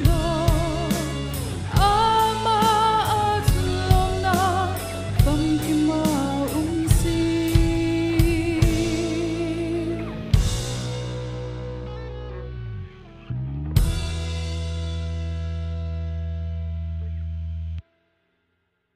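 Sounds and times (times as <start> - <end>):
woman singing into a microphone: 0.0 - 10.3
backing track with drum beat: 0.0 - 11.9, 13.8 - 15.2.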